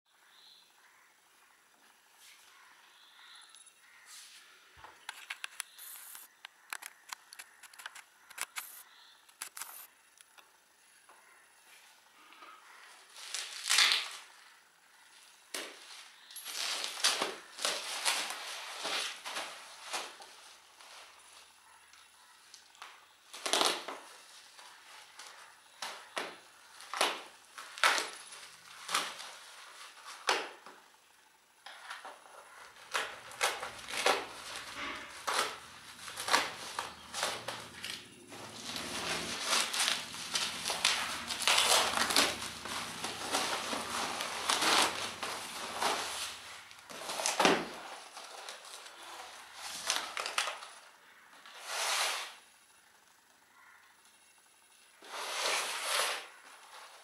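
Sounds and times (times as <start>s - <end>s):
plastic wrap crinkling: 13.0s - 14.4s, 15.8s - 21.6s, 22.5s - 30.4s, 32.8s - 50.8s
packing tape ripping: 13.2s - 14.3s, 16.3s - 20.3s, 23.3s - 24.0s, 25.2s - 30.5s, 32.8s - 50.8s, 55.0s - 57.0s.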